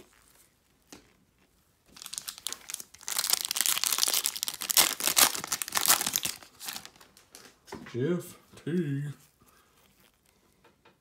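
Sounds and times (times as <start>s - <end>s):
foil wrapper crinkling: 1.9s - 7.4s.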